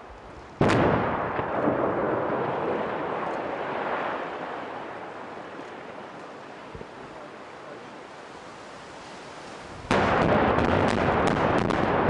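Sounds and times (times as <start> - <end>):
loud explosion blast: 0.6 - 4.1, 9.9 - 12.0.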